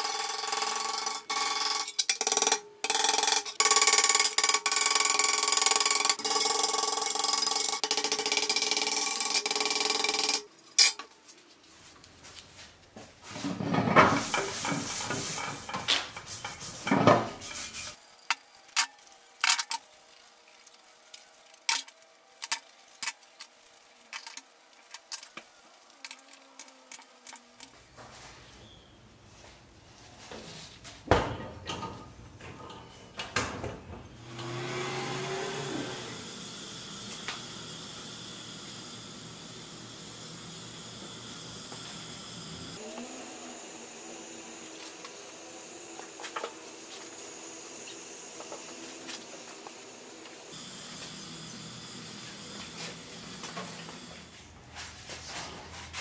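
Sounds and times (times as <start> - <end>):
paint sprayer hiss: 35.8 - 54.9.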